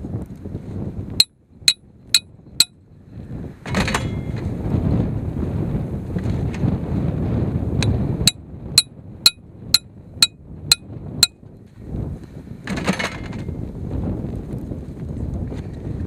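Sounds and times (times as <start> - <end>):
wind rumble on microphone: 0.0 - 16.0
hammer striking metal stake: 1.2 - 2.7, 8.3 - 11.4.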